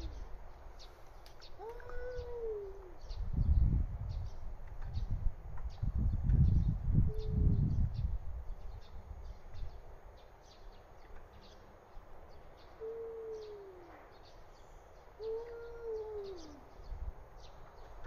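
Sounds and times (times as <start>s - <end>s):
cat yowling: 1.6s - 2.9s, 15.2s - 16.6s.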